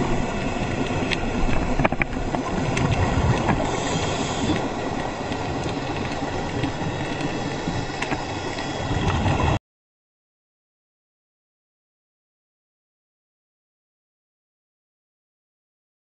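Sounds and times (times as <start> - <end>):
low rumble of moving water: 0.0 - 9.6
sharp clicks underwater: 0.4 - 9.6.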